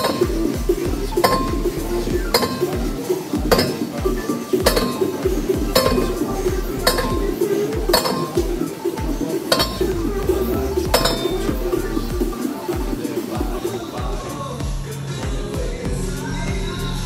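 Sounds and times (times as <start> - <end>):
background music with steady beat: 0.0 - 17.0
deep pulsing bass: 0.6 - 2.9, 5.3 - 7.4, 9.8 - 12.3, 15.6 - 17.0.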